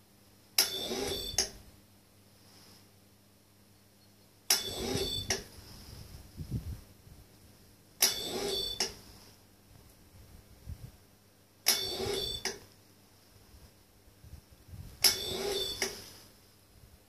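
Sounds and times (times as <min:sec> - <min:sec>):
low steady hum: 0:00.0 - 0:17.0
saw drive whir with whine: 0:00.6 - 0:01.6, 0:04.5 - 0:06.1, 0:08.0 - 0:09.0, 0:11.7 - 0:12.7, 0:15.0 - 0:16.3.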